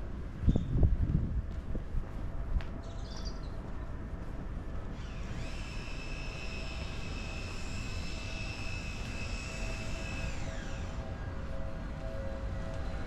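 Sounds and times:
electric train motors whining: 4.7 - 13.0.

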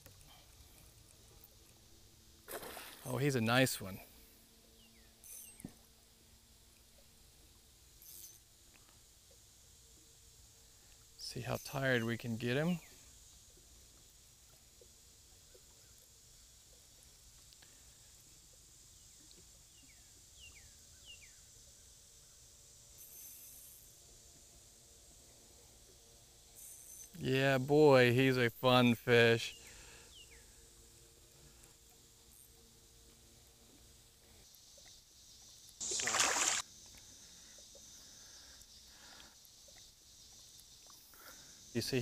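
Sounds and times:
faint outdoor hiss: 0.0 - 42.0
fishing reel drag buzzing: 4.8 - 5.8, 7.8 - 8.9, 22.9 - 24.1, 26.5 - 27.2, 35.8 - 41.8
brief high hiss: 35.8 - 36.7.

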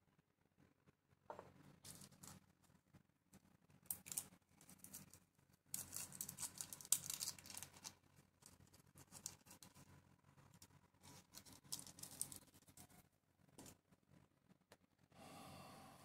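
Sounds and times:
plastic bag crinkling: 3.9 - 9.9, 11.0 - 12.9.

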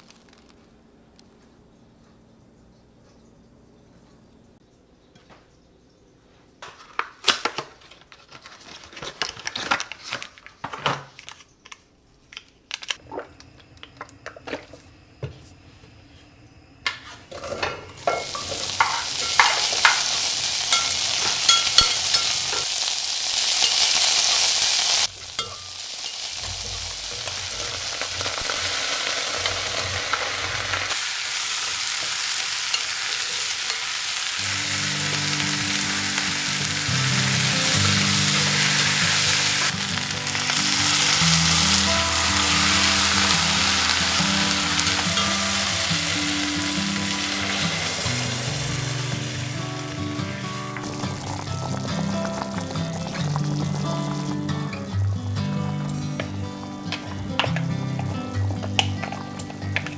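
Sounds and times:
vegetables sizzling in hot oil: 17.3 - 54.7.

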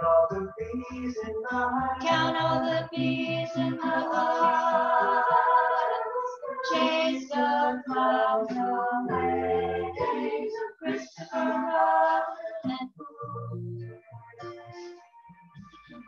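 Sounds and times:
voices singing a song: 0.0 - 13.6
instrumental accompaniment: 0.0 - 16.0
pulsing bass notes: 12.7 - 14.8.

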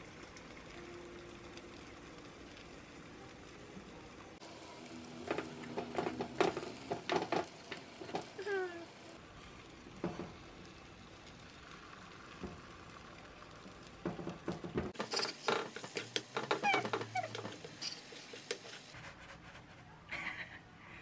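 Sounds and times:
chopsticks scraping a wok: 15.0 - 19.1.

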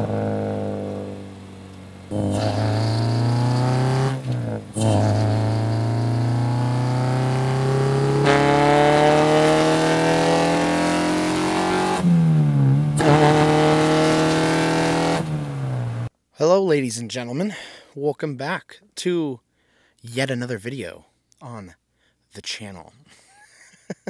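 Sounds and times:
car engine accelerating: 0.0 - 16.1.

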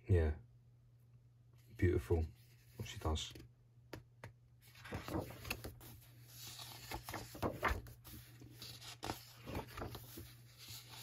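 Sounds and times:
book pages turning: 4.6 - 11.0.

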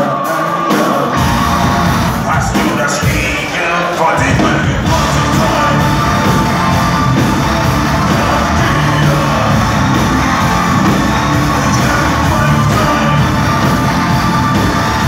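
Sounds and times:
man singing into a microphone: 0.0 - 1.3, 2.2 - 6.1, 8.0 - 9.7, 11.5 - 13.7
metal band playing live: 0.0 - 15.0.

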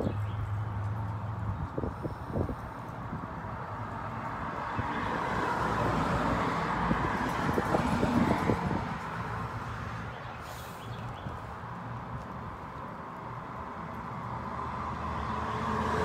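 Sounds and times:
car driving past: 14.4 - 16.0.

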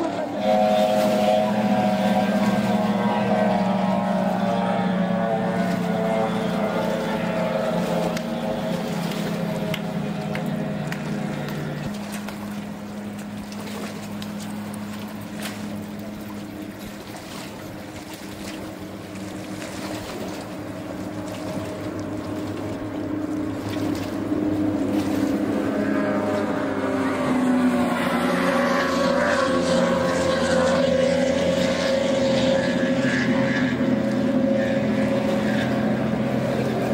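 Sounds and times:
powerboat engines droning: 0.0 - 36.9.

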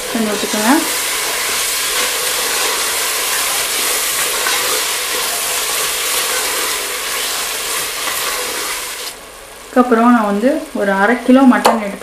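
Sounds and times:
wooden spoon stirring: 0.0 - 9.2
masala sizzling in oil: 0.0 - 11.4.

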